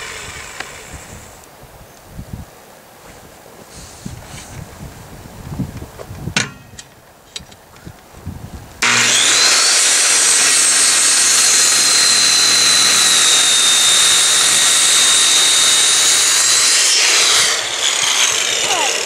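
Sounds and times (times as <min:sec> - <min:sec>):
circular saw cutting wood: 0:00.0 - 0:01.4, 0:08.8 - 0:19.0.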